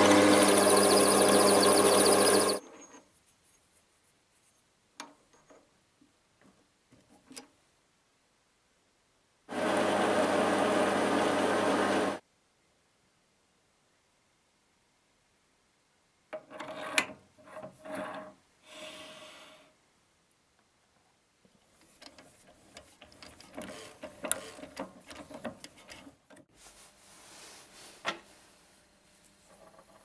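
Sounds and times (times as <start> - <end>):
soft rustle: 2.7 - 4.8, 25.7 - 30.0
threading die scraping metal: 21.8 - 26.2.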